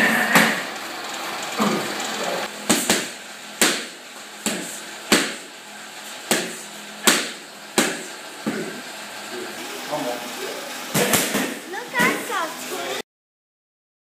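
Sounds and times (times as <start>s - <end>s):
boxing gloves smacking mitts: 2.7s - 5.5s, 6.2s - 8.8s.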